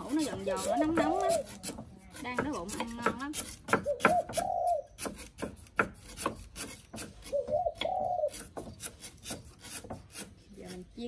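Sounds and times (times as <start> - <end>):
knife chopping on wooden board: 0.0 - 10.3
dove cooing: 3.8 - 5.0, 7.3 - 8.5.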